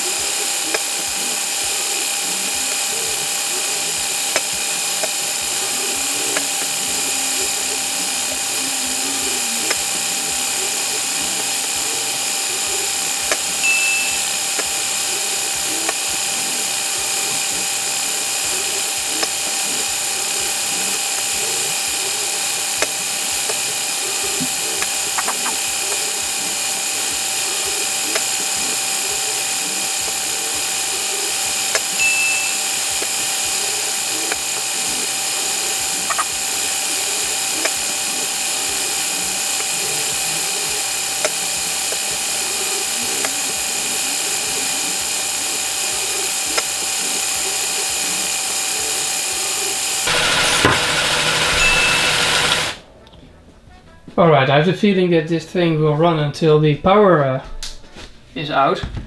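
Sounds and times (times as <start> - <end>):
small motors whirring: 0.0 - 52.8
scattered clicks: 0.0 - 53.2
short high beeps: 13.5 - 14.5, 32.0 - 32.8, 51.5 - 52.4.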